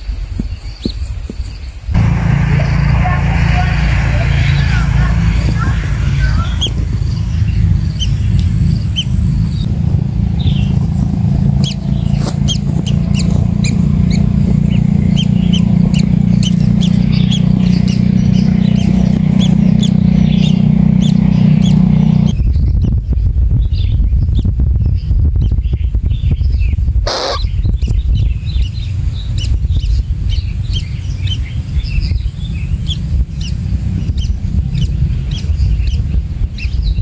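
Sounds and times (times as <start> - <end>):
loud low rumble: 2.0 - 22.9.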